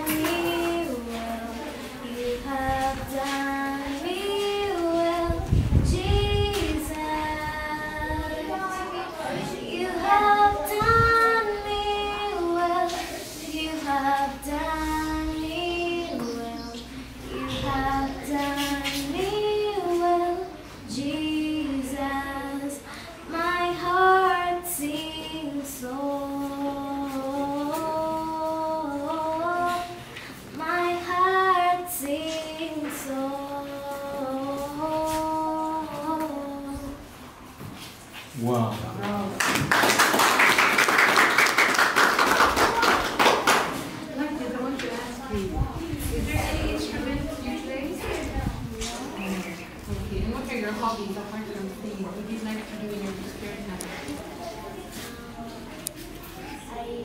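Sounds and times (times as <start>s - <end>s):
child singing: 0.0s - 37.1s.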